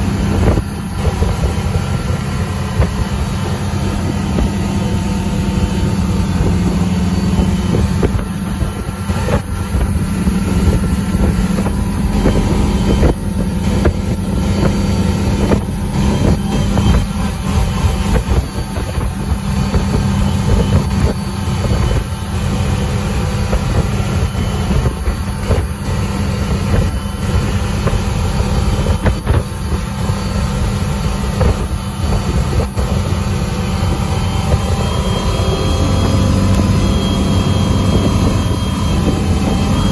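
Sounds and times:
boat engine running: 0.0s - 39.9s
water rushing behind boat: 0.0s - 39.9s.

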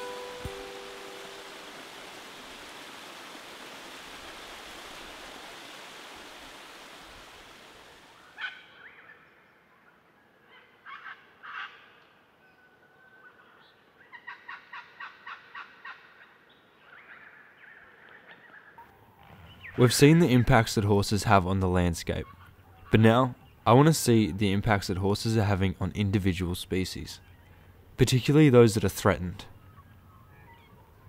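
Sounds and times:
birds calling: 0.0s - 3.7s, 29.1s - 31.0s
river water rushing over rocks: 0.0s - 8.2s.

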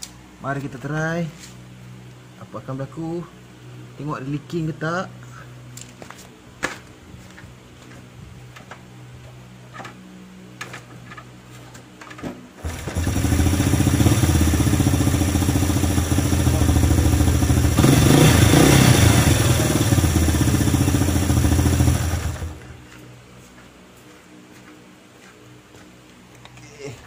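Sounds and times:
motorcycle engine running: 12.6s - 23.0s.

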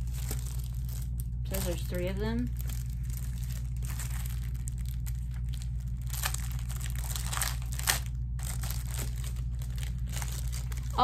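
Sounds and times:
plastic packaging crinkling: 0.0s - 11.0s
steady low hum: 0.0s - 11.0s.

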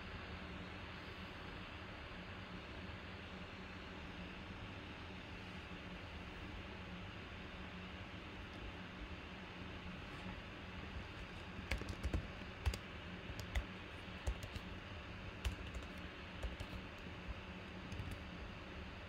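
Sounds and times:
keyboard typing: 11.3s - 14.7s, 15.4s - 18.2s.

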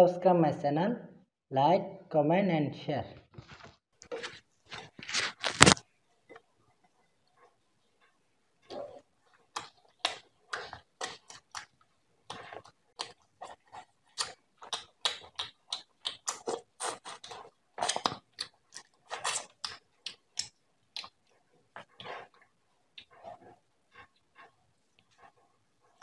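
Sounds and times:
wet chewing and lip smacks: 4.1s - 26.0s.

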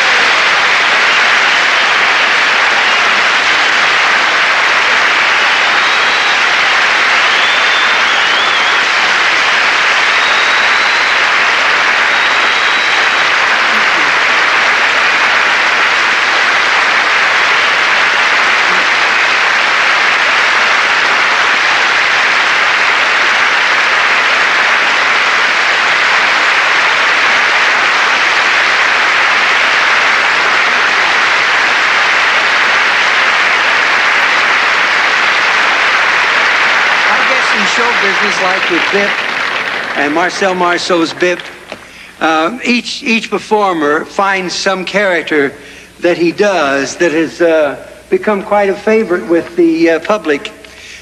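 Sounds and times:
audience applause: 0.0s - 42.8s.

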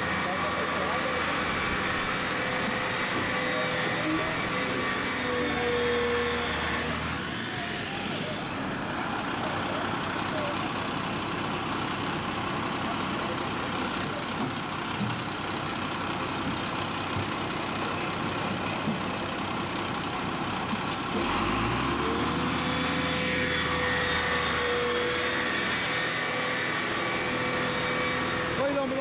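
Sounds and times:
engine droning: 0.0s - 29.0s.

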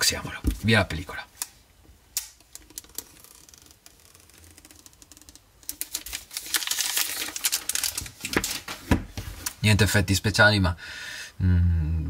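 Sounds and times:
plastic wrap clicking: 2.2s - 8.7s
packaging wrap tearing: 2.6s - 8.8s.

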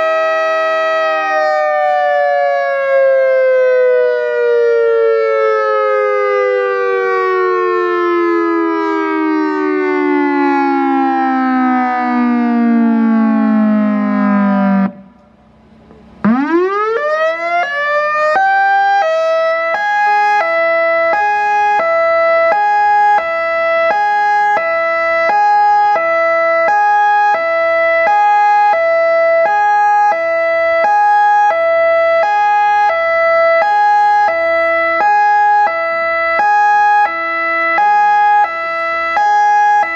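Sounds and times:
electronic warning siren: 0.0s - 39.9s.

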